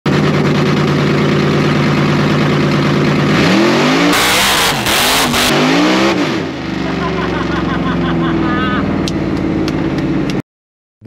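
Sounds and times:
car engine idling and revving: 0:00.1 - 0:10.4.

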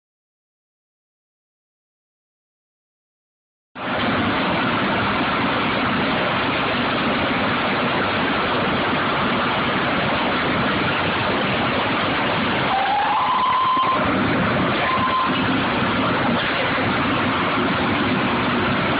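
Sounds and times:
loud drilling rig machinery: 0:03.8 - 0:18.9.

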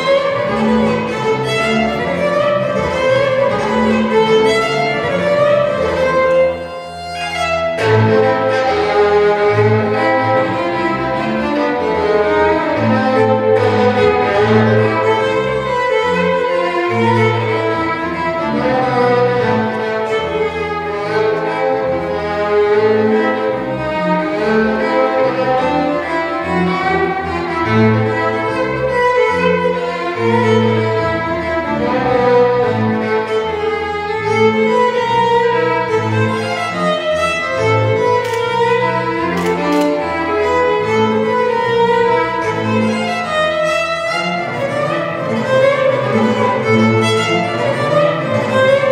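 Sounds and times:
bowed double bass: 0:00.0 - 0:48.9
fiddle melody: 0:00.0 - 0:48.9.

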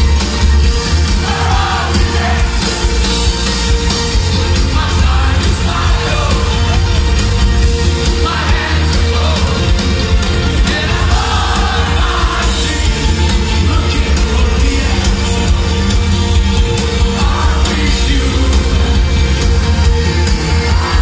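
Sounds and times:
live rock band with synths: 0:00.0 - 0:21.0.

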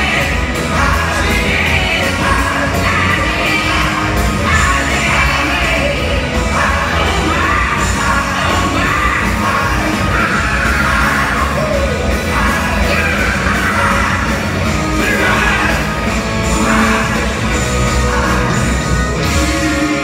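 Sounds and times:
live rock band playing: 0:00.0 - 0:20.0
man singing: 0:00.0 - 0:20.0.

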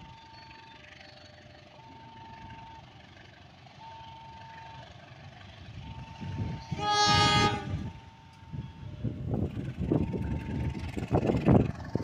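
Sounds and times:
locomotive engine rumble: 0:00.0 - 0:12.0
locomotive horn: 0:06.6 - 0:08.1.

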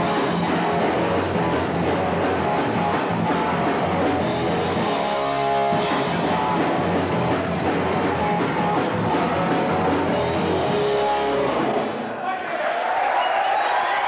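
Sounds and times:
punk rock band playing live: 0:00.0 - 0:12.2.

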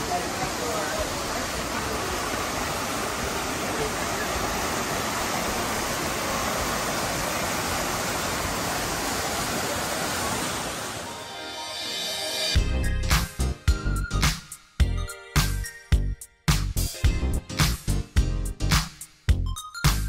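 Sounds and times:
waterfall rushing: 0:00.0 - 0:12.5.

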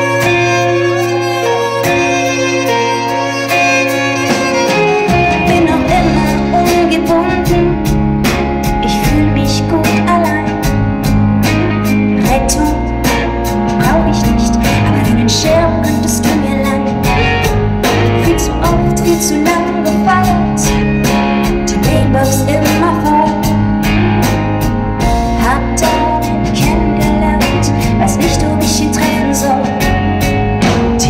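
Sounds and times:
bass: 0:00.0 - 0:31.0
keyboards: 0:00.0 - 0:31.0
live band playing pop song: 0:00.0 - 0:31.0
steady drum beat: 0:03.4 - 0:31.0
woman singing: 0:04.6 - 0:08.0, 0:08.6 - 0:10.8, 0:12.2 - 0:17.5, 0:18.1 - 0:20.8, 0:21.6 - 0:23.6, 0:25.3 - 0:30.0.

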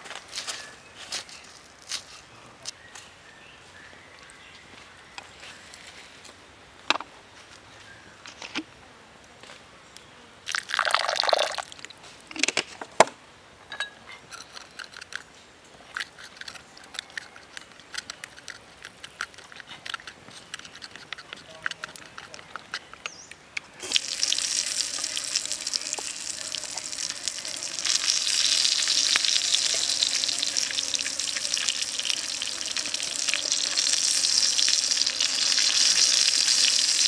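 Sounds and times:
water poured into stone mortar: 0:10.5 - 0:11.8, 0:23.8 - 0:37.0
wooden sticks clicking against stone: 0:15.9 - 0:23.4.

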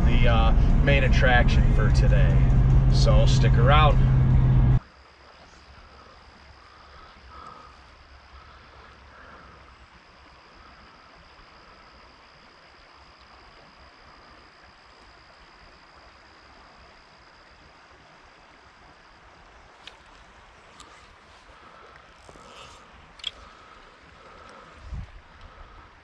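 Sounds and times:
high-pitched whine: 0:00.0 - 0:04.9
river water moving: 0:00.0 - 0:26.0.

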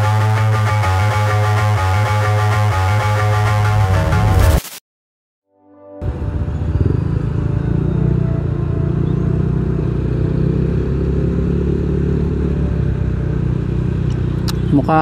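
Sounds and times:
road and wind noise: 0:06.0 - 0:15.0
scooter engine running: 0:06.0 - 0:15.0.

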